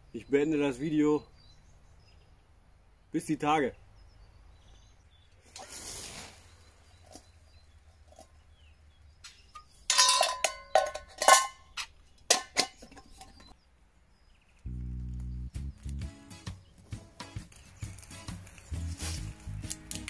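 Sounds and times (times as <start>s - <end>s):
metal camping pots clinking: 9.3s - 13.6s.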